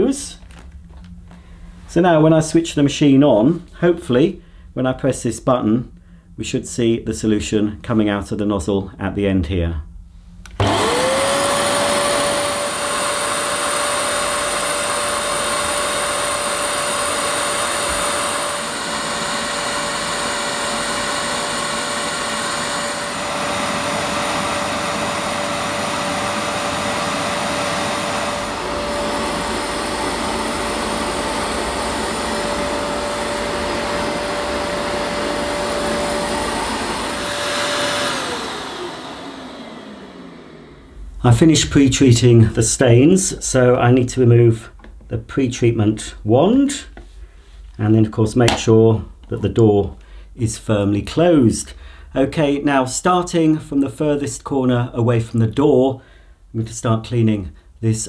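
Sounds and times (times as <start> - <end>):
carpet washer motor whining: 10.5 - 41.4.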